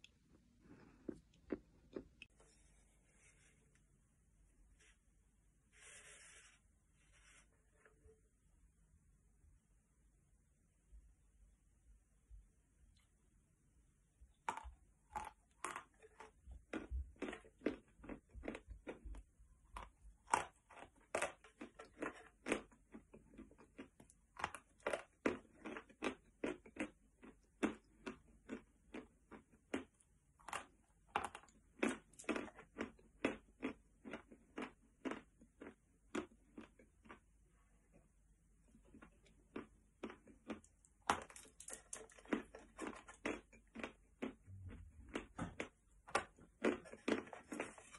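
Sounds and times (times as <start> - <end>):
chalk crunching while chewed: 14.5 - 37.3, 38.8 - 47.9.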